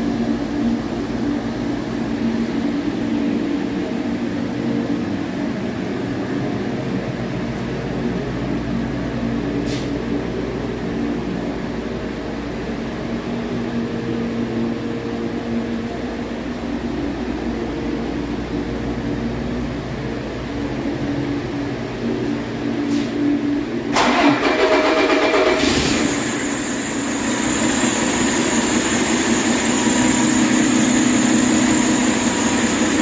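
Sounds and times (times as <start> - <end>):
diesel engine running steadily: 0.0 - 33.0
short hiss: 9.6 - 9.9.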